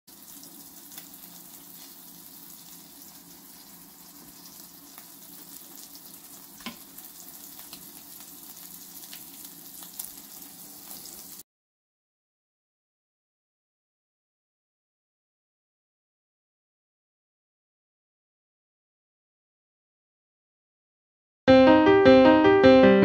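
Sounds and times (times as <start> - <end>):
fish sizzling in a frying pan: 0.1 - 11.4
small crackles: 0.3 - 11.4.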